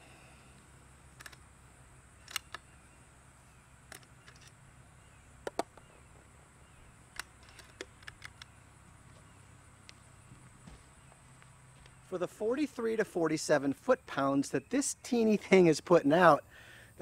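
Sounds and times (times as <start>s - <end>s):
air rifle clicks and clacks: 1.1s - 1.5s, 2.2s - 2.7s, 3.9s - 4.6s, 7.1s - 8.6s.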